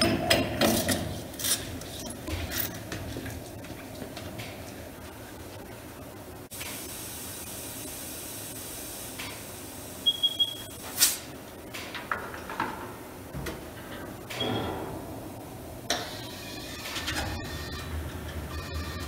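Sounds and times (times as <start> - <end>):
high electronic beeps: 1.9 - 2.8, 10.0 - 10.8, 16.1 - 19.0.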